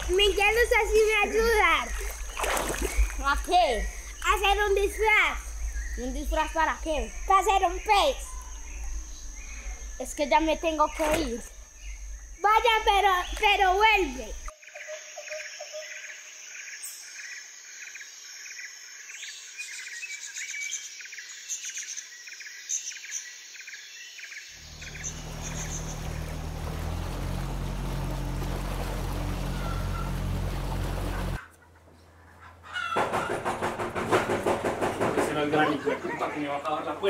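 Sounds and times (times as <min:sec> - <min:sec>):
low hum with noisy wash: 0:24.6 - 0:31.4
birds chirping and clucking: 0:28.1 - 0:37.0.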